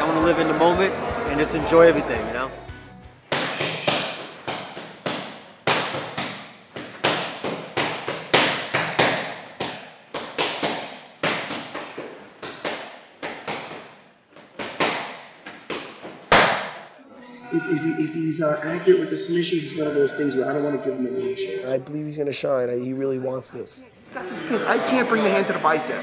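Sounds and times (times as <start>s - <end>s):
boxing gloves smacking mitts: 3.3s - 16.9s.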